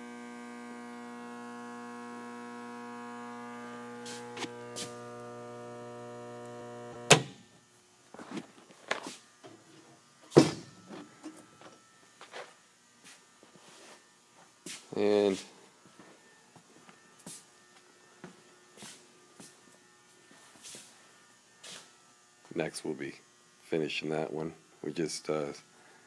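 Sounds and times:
breaker switch click: 7.0s - 7.4s.

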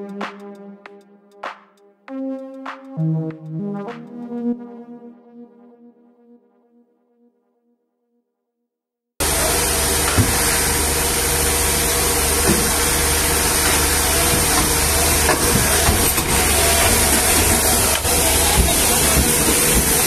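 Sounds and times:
diesel engine droning: 9.2s - 20.0s.

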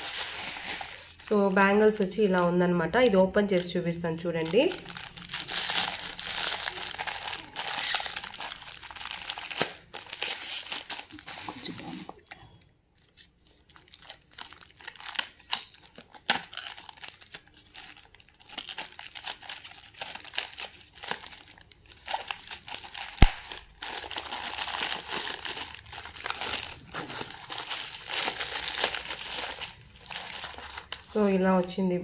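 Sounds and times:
packing wrap crinkling and tearing: 0.0s - 3.2s, 4.4s - 12.3s, 12.9s - 31.2s.

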